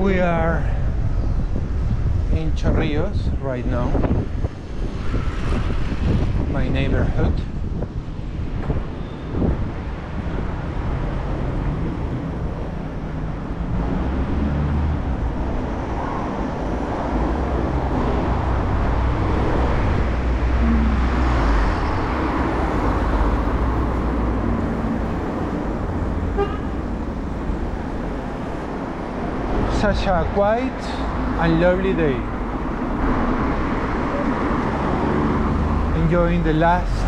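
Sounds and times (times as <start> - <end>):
cars passing: 0.0 - 37.0
wind on microphone: 0.0 - 37.0
tyres rolling on road: 4.1 - 37.0.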